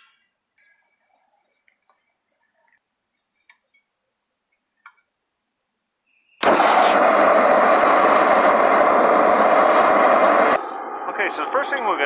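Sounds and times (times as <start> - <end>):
faint clicks: 0.2 - 3.9
propane burner whoosh and hiss: 6.4 - 12.0.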